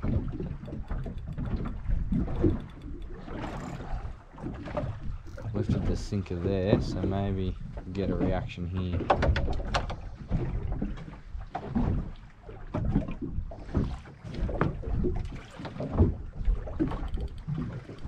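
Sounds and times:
wind buffeting microphone: 0:00.0 - 0:08.4
water lapping against boat hull: 0:00.0 - 0:18.0.

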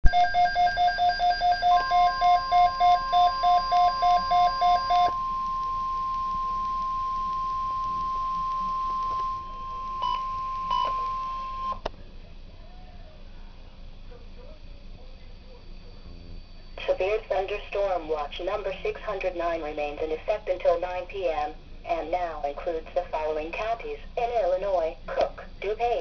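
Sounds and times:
steady high warning tone: 0:00.0 - 0:24.6
pulsing two-pitch beep: 0:00.1 - 0:11.8.

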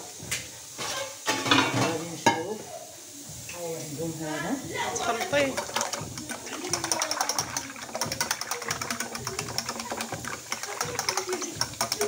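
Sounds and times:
utensil clicking against metal pan: 0:05.0 - 0:12.0.

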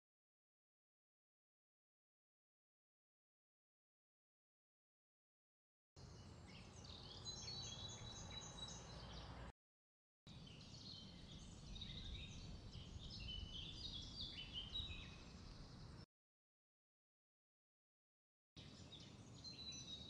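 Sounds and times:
small birds chirping: 0:06.0 - 0:09.5, 0:10.3 - 0:16.0, 0:18.6 - 0:20.0.

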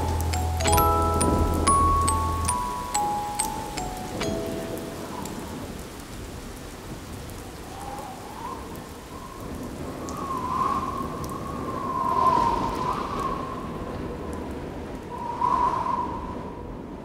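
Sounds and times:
rain hissing: 0:00.0 - 0:13.0.

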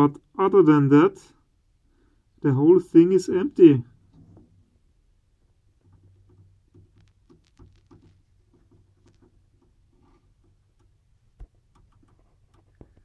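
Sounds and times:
handling clicks and rubs: 0:05.6 - 0:13.0.

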